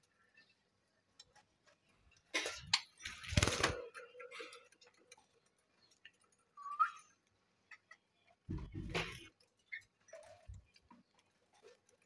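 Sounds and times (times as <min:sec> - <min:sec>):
rustling noises: 0:07.2 - 0:12.0.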